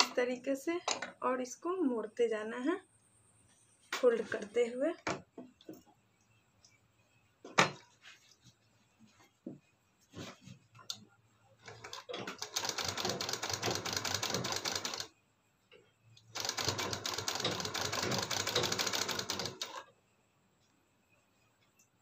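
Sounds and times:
sewing machine needle clatter: 11.6s - 15.1s, 16.3s - 19.9s.

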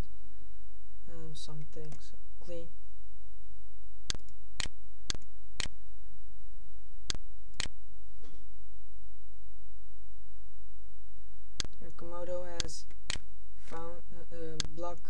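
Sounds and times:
steady low hum: 0.0s - 15.0s
computer clicks: 4.1s - 5.7s.

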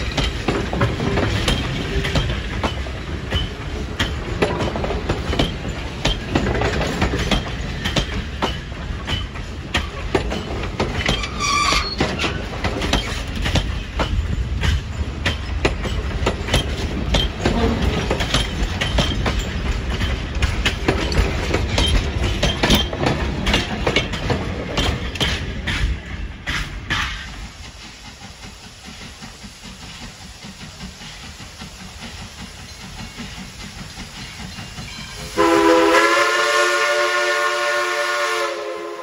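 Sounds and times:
wheels clicking over rail joints: 0.0s - 35.4s
train coaches rumbling past: 0.0s - 39.0s
high squeal: 11.1s - 12.4s.

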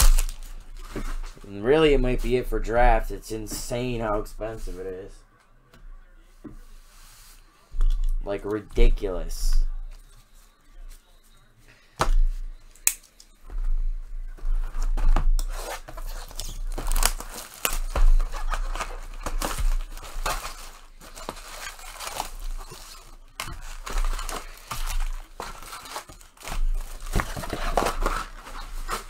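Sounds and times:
wrapping tearing and crinkling: 0.0s - 1.0s, 15.4s - 29.0s.

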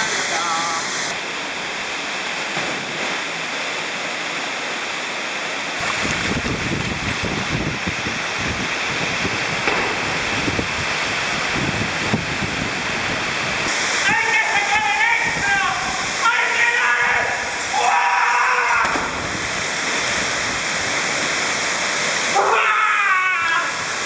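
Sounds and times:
stream and waterfall rushing: 0.0s - 24.0s
heavy splashing in water: 8.4s - 24.0s.

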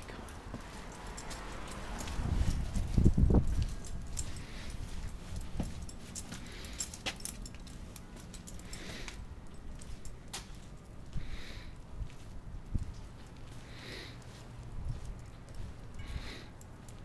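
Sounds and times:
dog leash metallic jingling: 0.0s - 17.0s.

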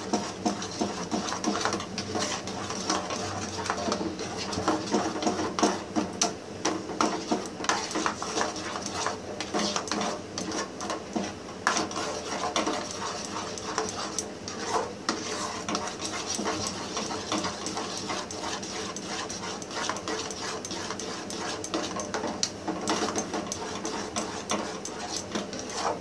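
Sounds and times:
spoon scraping steel pot: 7.0s - 26.0s.

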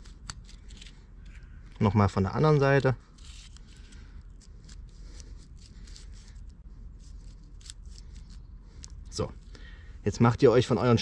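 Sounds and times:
knife scraping bark: 0.0s - 1.5s, 2.3s - 9.0s.

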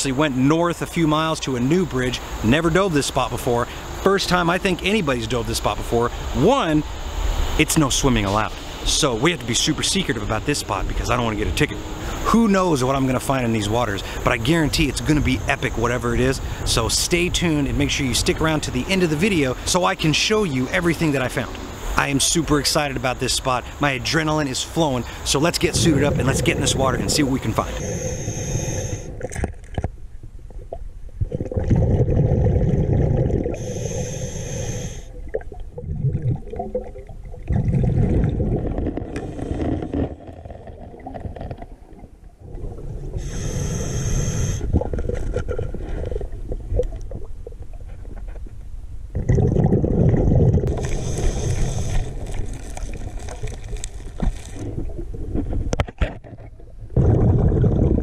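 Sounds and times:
regulator hissing inhale: 14.0s - 14.3s, 27.7s - 29.2s, 33.6s - 35.1s, 43.2s - 44.7s, 50.8s - 52.4s
exhaled bubbles rumbling: 25.0s - 48.5s, 49.1s - 58.0s.

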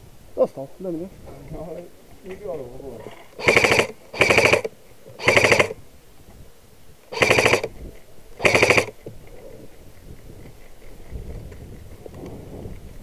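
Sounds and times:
airsoft rifle full-auto bursts: 3.4s - 5.8s, 7.1s - 7.8s, 8.4s - 9.0s.

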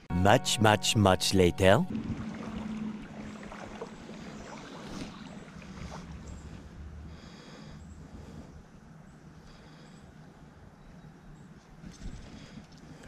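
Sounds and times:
shallow water flowing: 1.9s - 6.8s.

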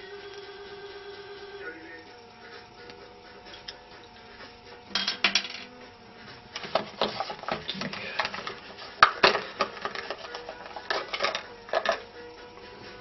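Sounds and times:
small parts clattering on ceramic: 4.9s - 5.7s, 6.6s - 12.1s.

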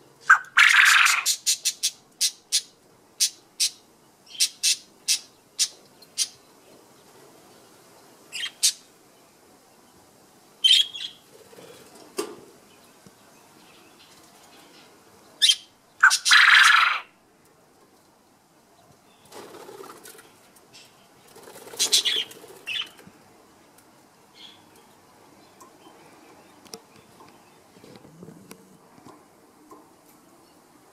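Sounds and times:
harsh quail call: 0.2s - 6.3s, 15.4s - 17.1s
quail chirping: 0.2s - 6.4s, 10.6s - 11.3s, 15.4s - 17.1s, 21.4s - 23.0s.

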